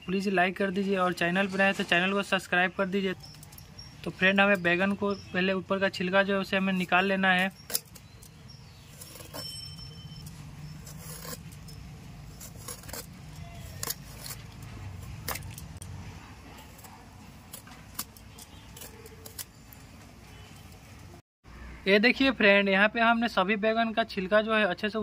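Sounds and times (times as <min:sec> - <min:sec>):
peeler scraping vegetable skin: 0:06.6 - 0:15.8, 0:16.4 - 0:20.8.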